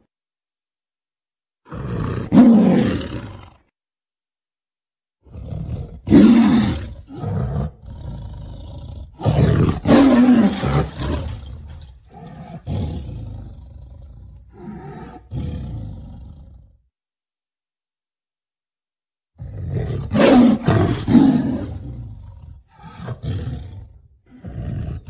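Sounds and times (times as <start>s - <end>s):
tiger roaring: 1.6s - 3.7s, 5.2s - 16.8s, 19.4s - 25.0s.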